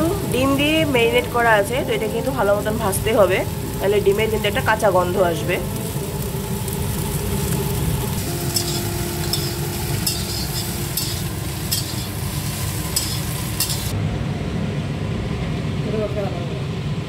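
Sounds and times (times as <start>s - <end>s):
food sizzling in oil: 0.0s - 14.0s
steady low rumble: 0.0s - 17.0s
metal spatula scraping pan: 8.4s - 13.9s.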